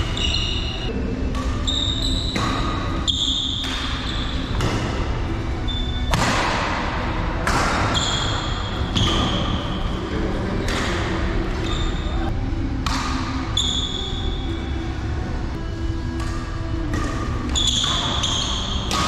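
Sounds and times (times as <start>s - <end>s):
shoes squeaking on court floor: 0.0s - 0.9s, 1.6s - 4.8s, 5.7s - 6.0s, 7.9s - 10.0s, 11.5s - 12.3s, 17.4s - 18.9s
rackets striking shuttlecock: 0.0s - 12.0s, 12.8s - 14.2s, 15.6s - 19.0s.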